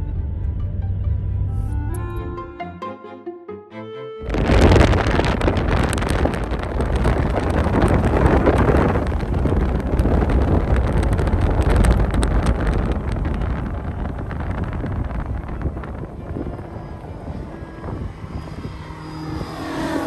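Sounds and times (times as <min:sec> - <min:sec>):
small aircraft engine droning: 0:00.0 - 0:20.0
wind buffeting microphone: 0:04.2 - 0:20.0.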